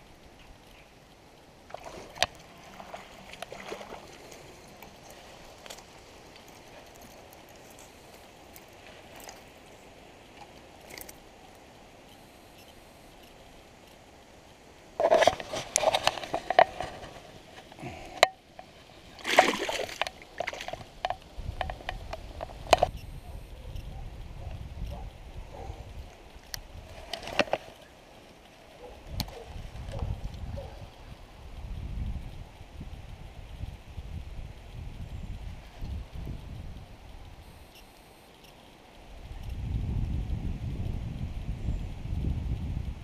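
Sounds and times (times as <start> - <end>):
fish splashing in water: 1.7 - 6.9, 19.1 - 21.2.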